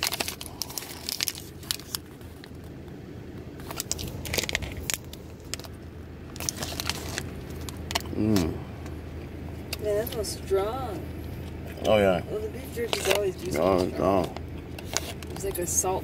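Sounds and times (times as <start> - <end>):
plastic wrapper crinkling: 0.0 - 2.7, 3.6 - 8.1.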